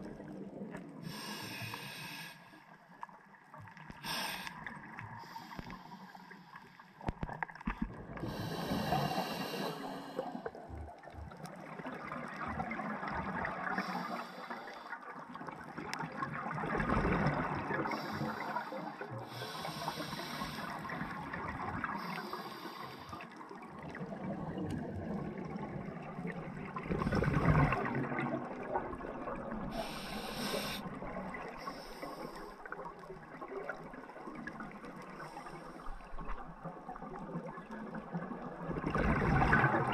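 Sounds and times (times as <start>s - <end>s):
hissing regulator inhalations: 1.1s - 2.6s, 8.2s - 10.5s, 17.9s - 20.9s, 21.9s - 23.2s, 29.7s - 30.9s
exhaled bubbles rushing: 15.4s - 18.4s, 23.7s - 29.7s, 36.3s - 39.9s.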